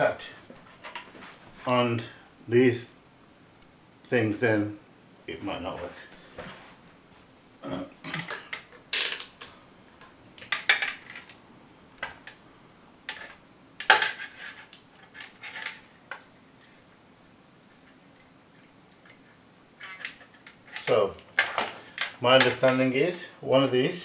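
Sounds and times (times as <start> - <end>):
plastic parts clicking and rattling: 10.4 - 11.4
short high beeps: 16.2 - 18.0.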